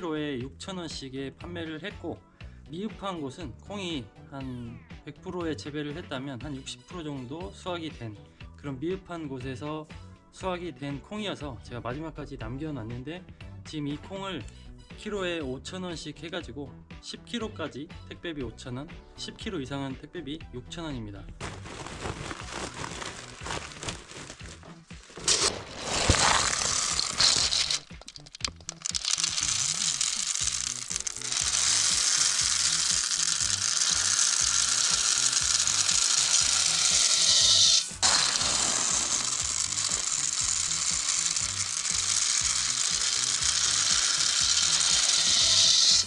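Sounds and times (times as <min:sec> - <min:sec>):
background music: 0:00.0 - 0:46.0
dried beans pouring into a sack: 0:21.4 - 0:46.0.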